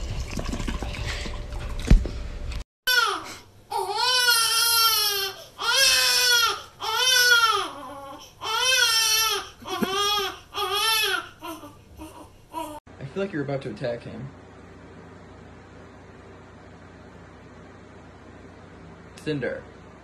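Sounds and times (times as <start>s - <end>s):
baby crying: 2.9s - 12.8s.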